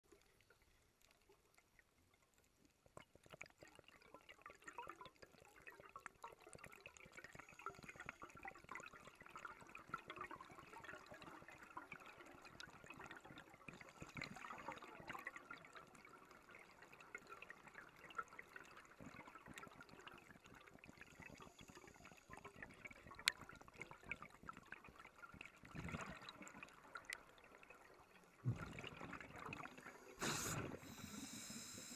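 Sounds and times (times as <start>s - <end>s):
underwater reef crackling: 0.0s - 31.9s
exhaled air bubbles gushing: 17.8s - 31.8s.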